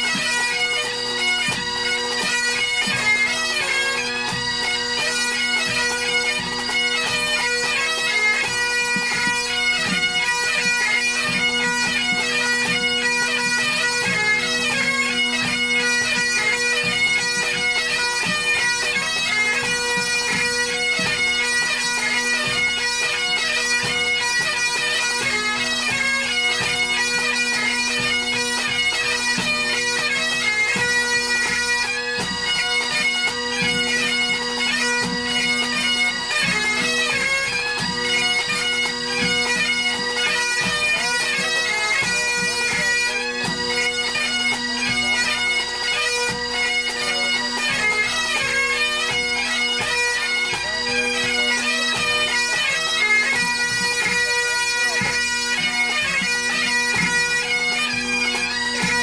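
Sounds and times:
bagpipe playing a tune: 0.0s - 59.0s
tenor drum beating: 8.2s - 52.7s.

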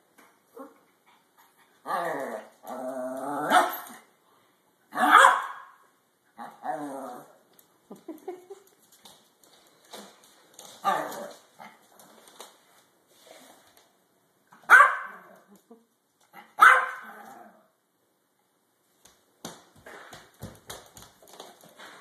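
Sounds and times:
small dog barking: 4.9s - 5.8s, 14.6s - 15.4s, 16.4s - 17.2s
footsteps on wooden floor: 19.4s - 22.0s.

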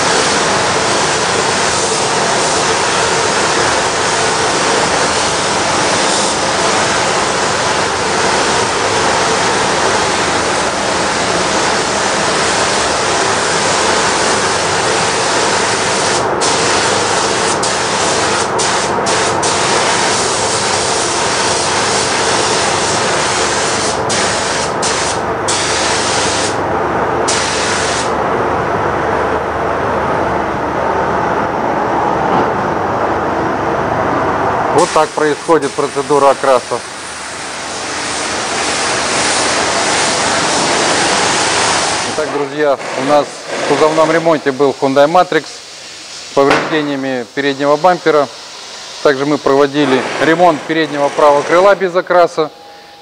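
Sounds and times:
paint spray gun hissing: 15.1s - 26.6s.

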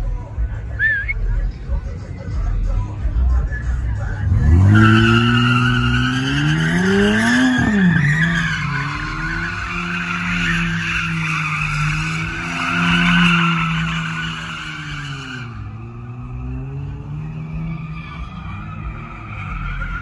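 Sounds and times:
car engine revving: 2.4s - 20.0s
tyres squealing: 4.2s - 15.9s.

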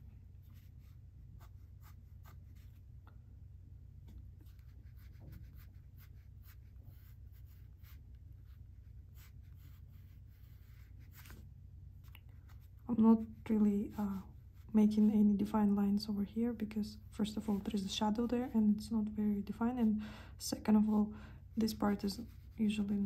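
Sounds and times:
low steady hum: 0.0s - 23.0s
pencil scratching on paper: 0.5s - 2.8s, 4.4s - 11.4s.

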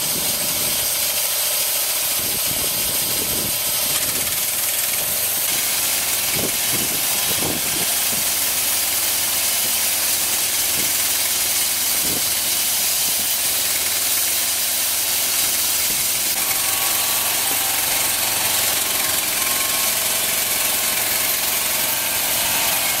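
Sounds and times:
band blade cutting log: 0.0s - 23.0s
small petrol engine running: 0.0s - 23.0s.

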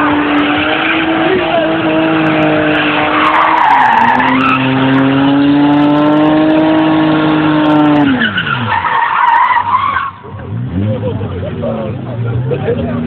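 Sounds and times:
tyres squealing: 0.0s - 5.4s, 7.7s - 10.4s
car engine revving high: 0.0s - 13.0s.

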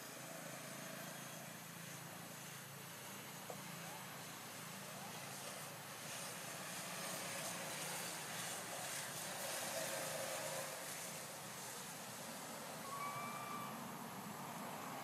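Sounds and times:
outdoor hiss: 0.0s - 15.0s
faint high squeaks: 12.8s - 13.8s.

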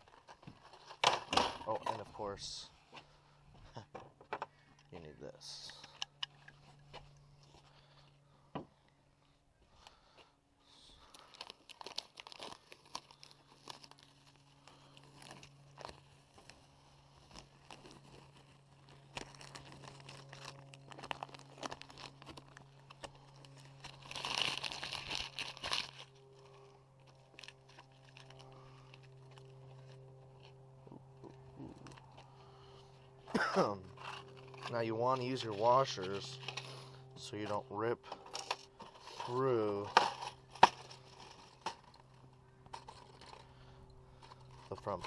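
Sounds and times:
low hum: 0.0s - 45.0s
packaging crinkling: 10.9s - 32.5s.

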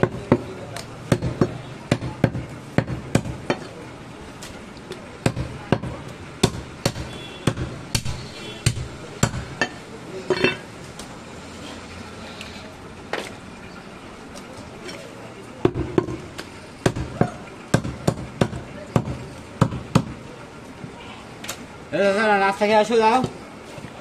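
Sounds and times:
knife chopping meat on wood: 1.1s - 3.7s, 5.2s - 9.7s, 16.8s - 20.1s.

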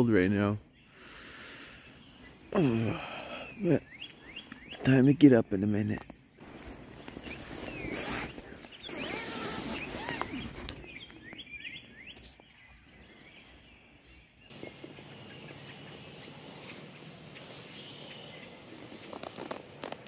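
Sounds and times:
songbirds chirping and singing: 0.0s - 20.0s
outdoor hiss: 0.9s - 2.1s.

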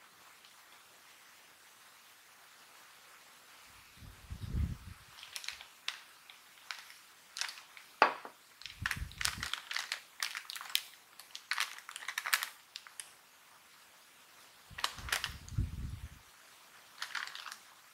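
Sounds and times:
snack bag crinkling: 5.1s - 13.2s, 14.7s - 15.6s, 16.8s - 17.9s.

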